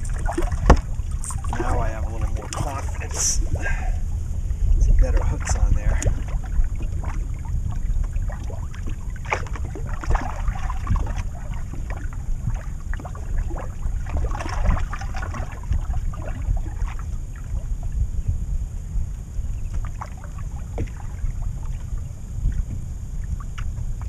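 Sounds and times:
short splashes or knocks: 0.0s - 3.4s, 5.1s - 17.0s, 19.7s - 21.8s
water lapping against boat hull: 0.0s - 24.0s
wind buffeting microphone: 0.0s - 24.0s.

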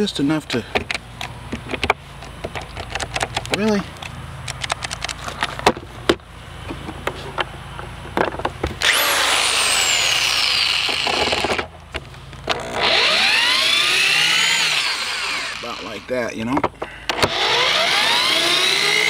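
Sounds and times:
handling knocks and clicks: 0.5s - 8.8s
electric drill motor whine: 8.8s - 11.6s, 12.5s - 16.1s, 17.1s - 19.0s.

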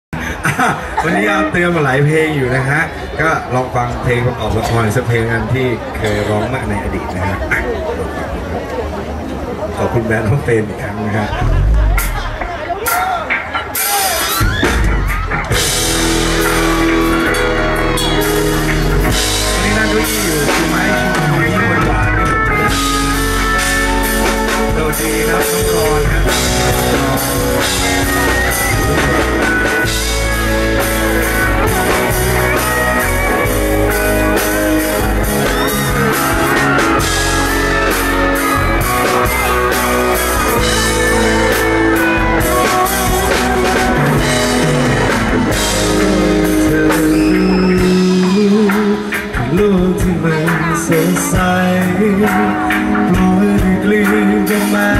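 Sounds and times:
keyboard: 0.1s - 54.9s
guitar: 11.2s - 54.9s
drum kit: 11.4s - 54.9s.

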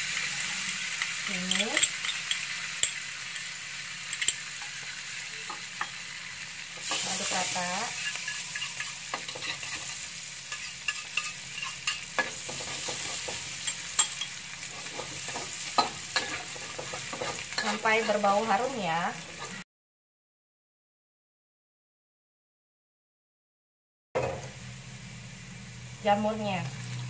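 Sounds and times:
garlic sizzling in oil: 0.0s - 19.6s, 24.2s - 27.0s
spatula scraping a pan: 6.7s - 18.5s, 19.2s - 19.6s.

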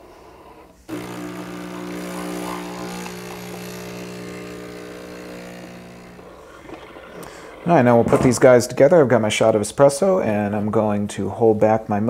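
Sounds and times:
espresso machine pump humming: 0.9s - 7.7s.

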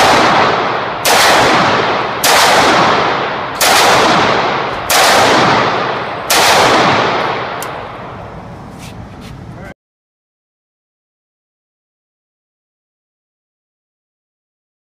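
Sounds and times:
shotgun blasts echoing indoors: 0.0s - 8.2s.

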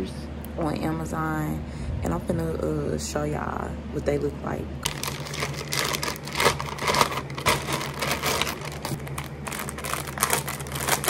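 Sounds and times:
low hum: 0.0s - 11.0s
packaging crinkling: 4.8s - 11.0s.

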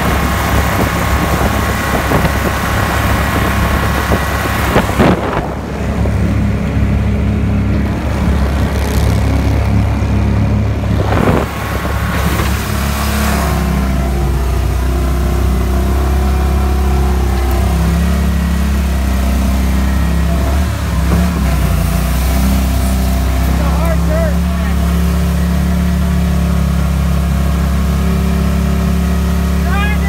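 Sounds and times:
boat motor running: 0.0s - 30.0s.

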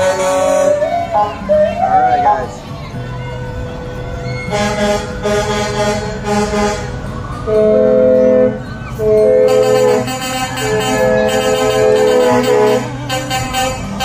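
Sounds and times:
vehicle air horn blasts: 0.0s - 0.8s, 4.5s - 6.9s, 7.5s - 14.0s
music: 0.0s - 14.0s.

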